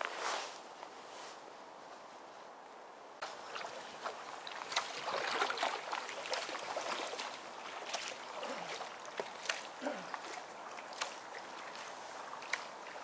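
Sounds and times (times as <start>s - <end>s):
faint outdoor background: 0.0s - 13.0s
kayak paddle splashing: 3.2s - 13.0s.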